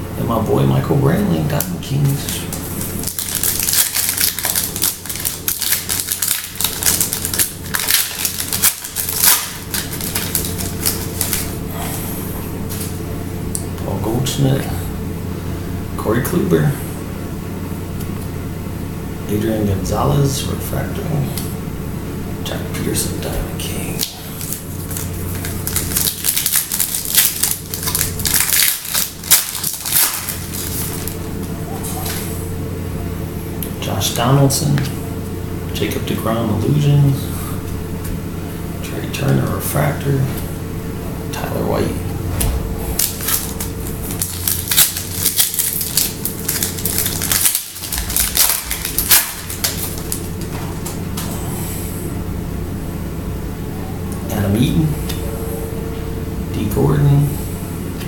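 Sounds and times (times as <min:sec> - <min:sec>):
foil wrapper crinkling: 0:02.4 - 0:11.6, 0:24.0 - 0:32.2, 0:42.9 - 0:50.6.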